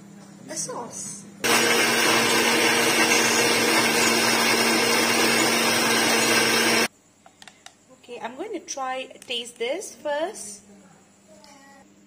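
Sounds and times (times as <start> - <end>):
mixer grinder whirring: 1.4 - 6.9.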